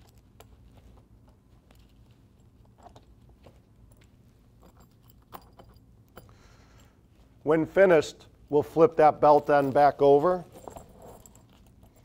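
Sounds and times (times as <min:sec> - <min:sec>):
metal fasteners clicking and tapping: 0:01.7 - 0:06.3.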